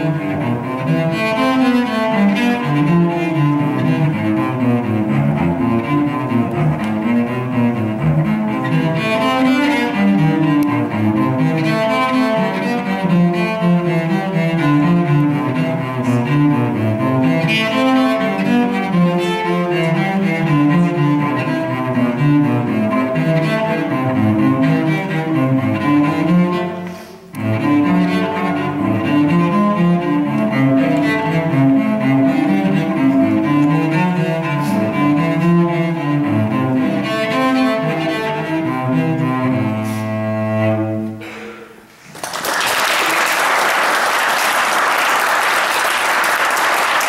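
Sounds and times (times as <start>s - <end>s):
solo cello playing: 0.0s - 41.6s
audience applause: 42.1s - 47.0s.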